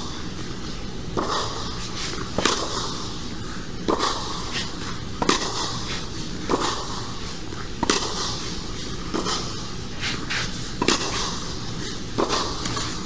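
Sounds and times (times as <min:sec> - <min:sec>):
steady background noise: 0:00.0 - 0:13.0
racquet striking tennis ball: 0:01.1 - 0:03.2, 0:03.8 - 0:09.7, 0:10.5 - 0:13.0
tennis ball bouncing on clay: 0:05.2 - 0:07.1, 0:07.8 - 0:09.6, 0:10.8 - 0:11.4.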